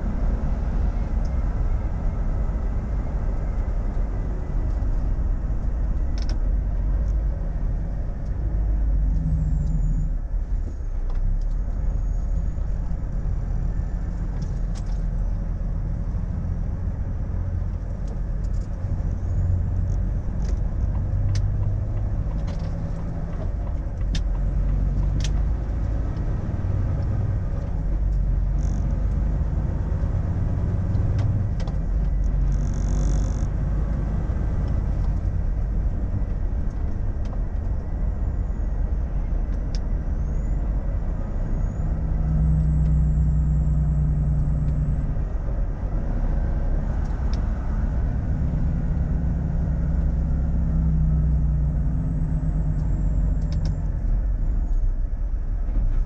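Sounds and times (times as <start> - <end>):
truck engine and road rumble: 0.0 - 56.0.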